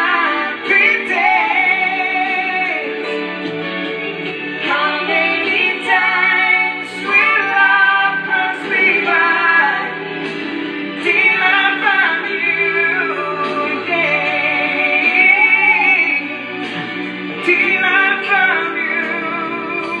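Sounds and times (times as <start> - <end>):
person singing long sliding notes: 0.0 - 3.3, 4.6 - 20.0
rock instrumental backing: 0.6 - 9.1.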